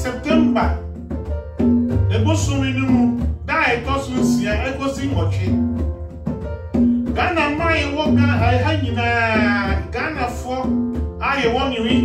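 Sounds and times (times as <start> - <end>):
man singing: 0.0 - 0.8, 2.1 - 5.7, 7.2 - 10.6, 11.2 - 12.0
conga drums: 0.0 - 12.0
music with repeating low part: 0.0 - 12.0.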